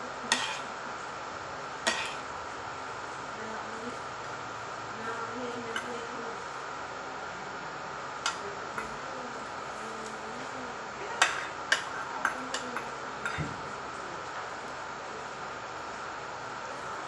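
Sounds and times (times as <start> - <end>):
cutlery tapping and scraping plate: 0.3 - 0.6, 1.8 - 2.2, 11.2 - 13.5.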